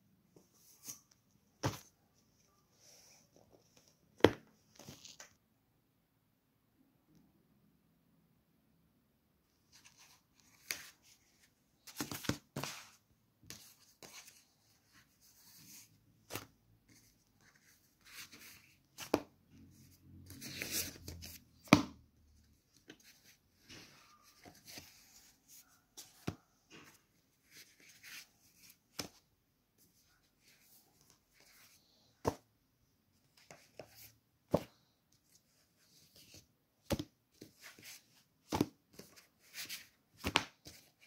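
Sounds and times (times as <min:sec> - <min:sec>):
paper pages rustling: 0:09.7 - 0:19.3, 0:20.2 - 0:21.7.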